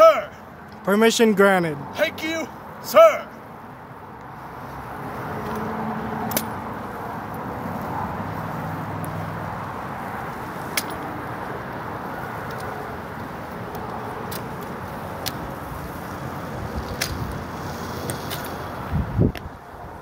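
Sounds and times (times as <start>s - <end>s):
distant road traffic hum: 0.0s - 20.0s.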